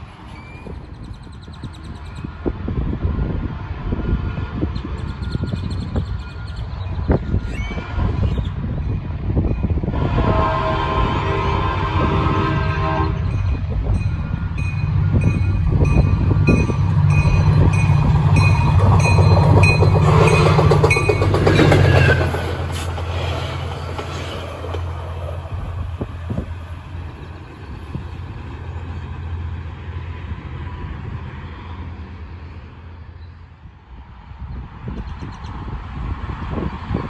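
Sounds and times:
locomotive engine hum: 0.0 - 37.0
train bell ringing: 13.3 - 22.3
wheels clacking over rail joints: 14.6 - 29.7.

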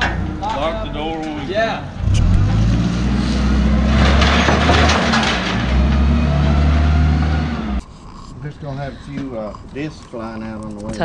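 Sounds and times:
vehicle engine humming: 0.0 - 7.9
rattling noise: 2.0 - 8.2.

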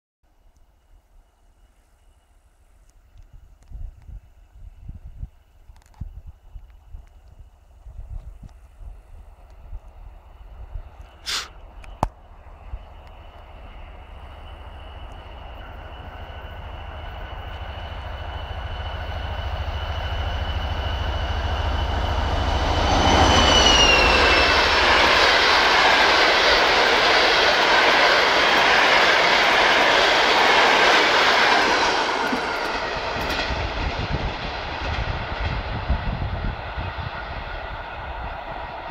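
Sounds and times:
diesel locomotive whine passing: 0.3 - 38.9
train wheels clattering on rails: 14.8 - 37.5.

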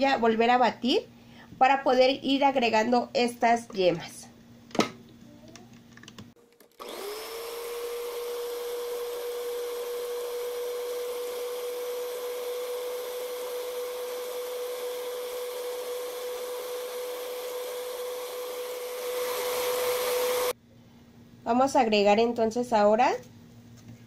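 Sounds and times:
electric hand mixer whining: 6.6 - 20.6.

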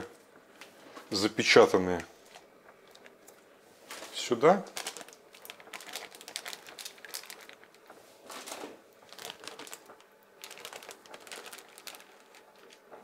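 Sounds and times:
plastic bags crinkling: 2.2 - 13.0.

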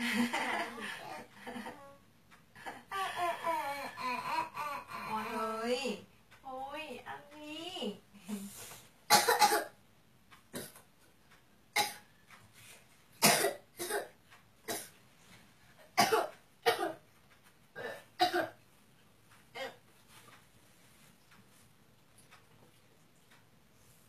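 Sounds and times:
person coughing: 9.1 - 9.8, 13.2 - 14.9, 16.0 - 17.0, 17.8 - 18.6.

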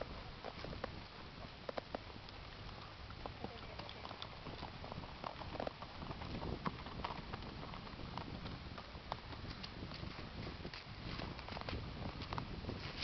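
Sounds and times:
low background noise: 0.0 - 9.8
horse hooves clip-clopping: 0.0 - 13.0.

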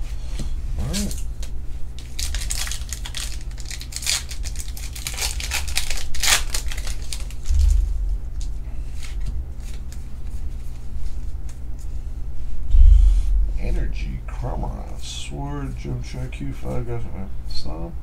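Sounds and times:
low steady hum: 0.0 - 18.0
foil wrapper tearing and crinkling: 2.0 - 10.3.

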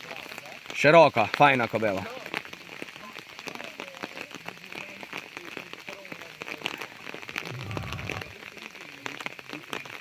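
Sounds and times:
raindrops ticking: 0.0 - 10.0
faint voices: 2.8 - 9.7.

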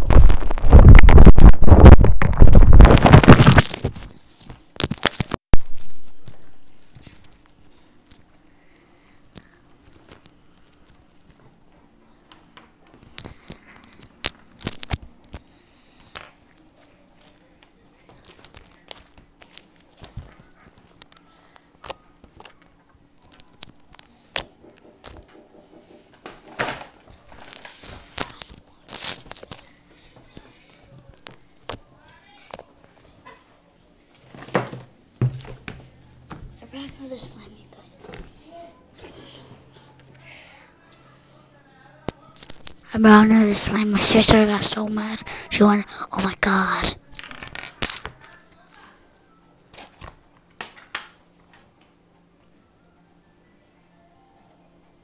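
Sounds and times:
slime crackles and sticky tearing: 27.3 - 29.6.

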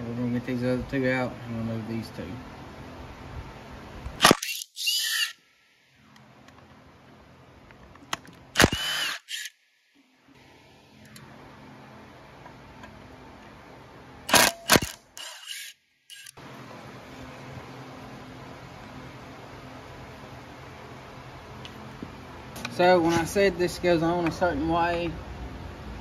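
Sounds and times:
cordless power driver spinning bolts: 4.2 - 5.4, 8.0 - 9.6, 14.3 - 16.4.

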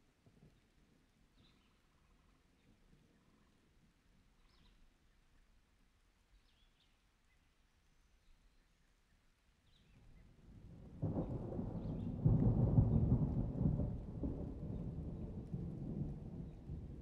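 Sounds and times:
thunder rumbling: 10.6 - 17.0.

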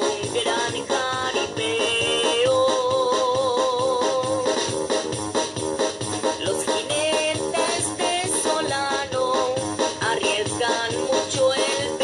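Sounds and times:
corrido music with steady beat: 0.0 - 12.0.

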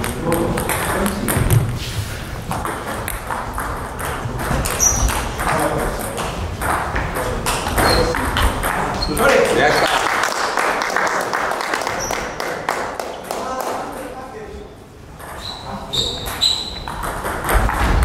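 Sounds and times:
table tennis balls bouncing: 0.0 - 10.0, 15.0 - 18.0.

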